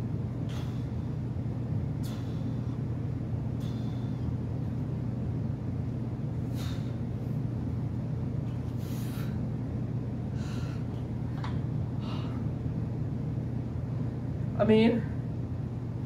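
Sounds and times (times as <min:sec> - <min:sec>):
steady low hum: 0:00.0 - 0:16.0
man's forceful breaths: 0:00.3 - 0:05.1, 0:06.3 - 0:07.9, 0:08.5 - 0:11.2, 0:11.8 - 0:12.6.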